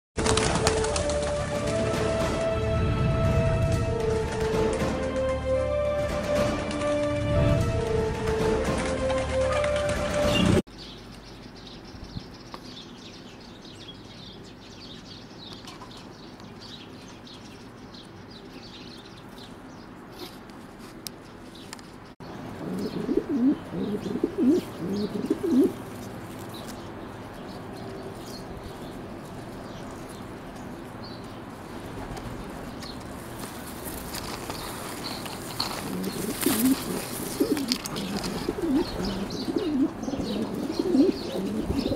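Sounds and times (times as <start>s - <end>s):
pigeon cooing: 22.6s - 25.8s, 35.6s - 41.9s.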